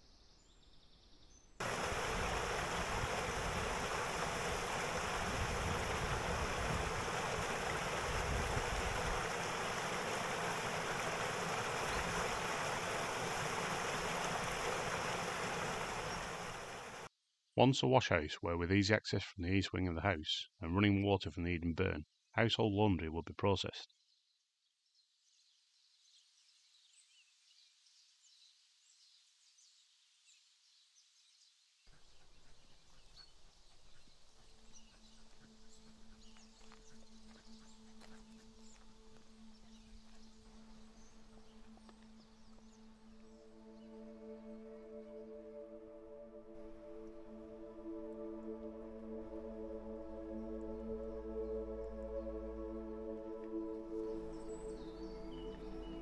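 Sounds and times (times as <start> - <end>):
birds chirping: 0.0 - 23.9, 31.9 - 45.7, 50.2 - 56.0
water rushing over a weir: 1.6 - 17.1
low noise: 1.6 - 23.8.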